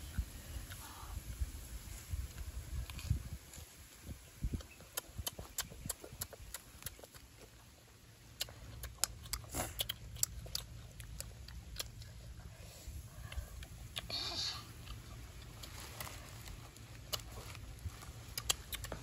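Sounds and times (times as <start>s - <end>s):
low steady rumble: 0.0s - 19.0s
chewing and lip smacking: 4.4s - 19.0s.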